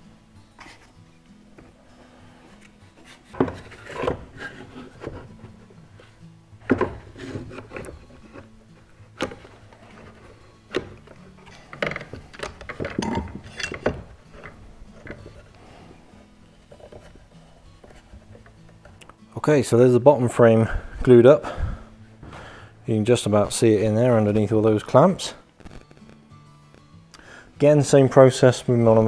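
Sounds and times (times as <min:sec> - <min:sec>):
faint background music: 0:00.0 - 0:29.0
wooden strips knocking and rubbing: 0:03.0 - 0:15.6, 0:16.5 - 0:19.0
clamps knocking and clacking: 0:10.7 - 0:15.3.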